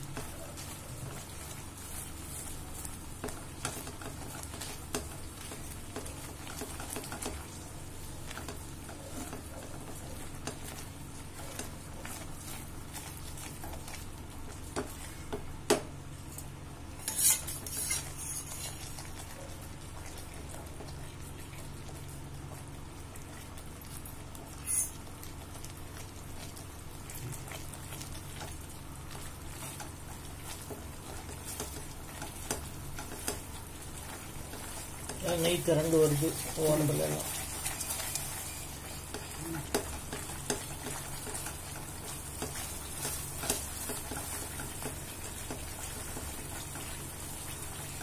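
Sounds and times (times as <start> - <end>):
soft sizzle: 0.0 - 48.0
spatula scraping a pan: 17.0 - 19.0, 24.6 - 25.0, 34.0 - 47.0.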